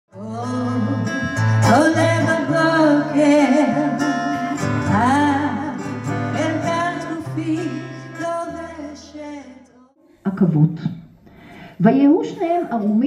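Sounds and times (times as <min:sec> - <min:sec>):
guitar accompaniment: 0:00.1 - 0:09.8
person singing: 0:00.1 - 0:09.8.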